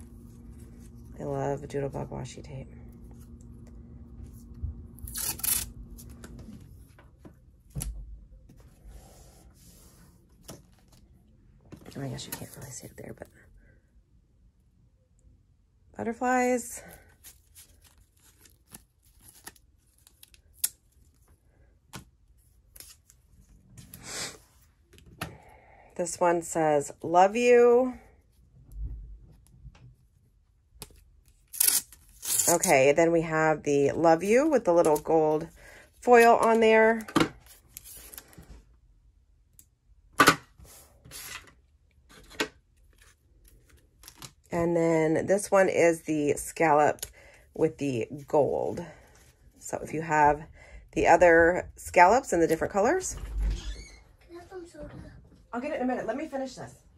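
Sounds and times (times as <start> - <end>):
tape being unrolled and torn: 5.0 - 6.3, 17.2 - 21.2, 30.8 - 32.7, 42.9 - 44.5.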